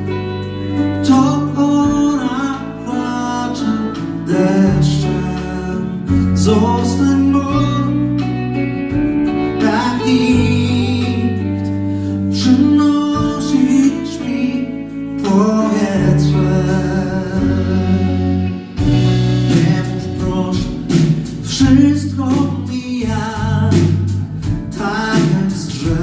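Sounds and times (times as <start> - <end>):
guitar: 0.0 - 26.0
live band playing slow song: 0.0 - 26.0
person singing: 0.0 - 26.0.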